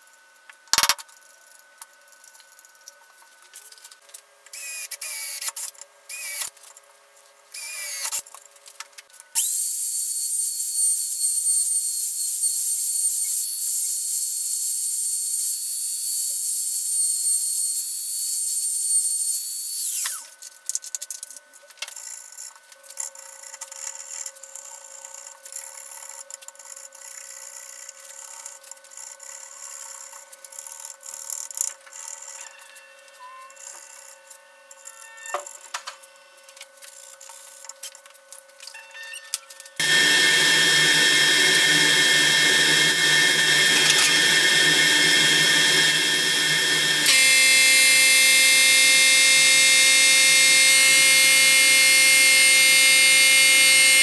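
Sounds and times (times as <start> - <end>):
trim router whining: 9.4 - 14.3, 15.2 - 20.3, 39.8 - 54.0.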